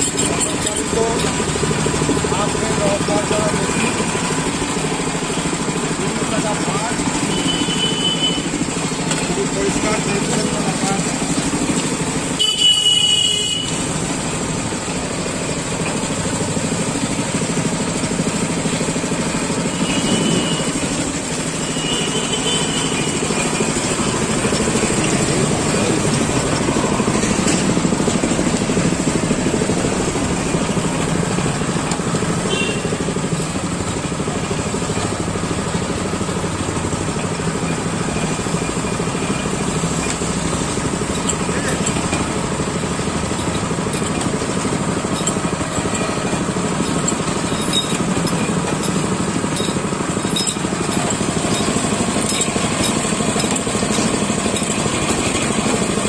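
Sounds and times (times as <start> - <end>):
motorized juice press running: 0.0 - 56.0
vehicle horn honk: 7.3 - 8.4, 12.4 - 13.8, 19.8 - 20.7, 21.7 - 23.2, 32.5 - 32.9.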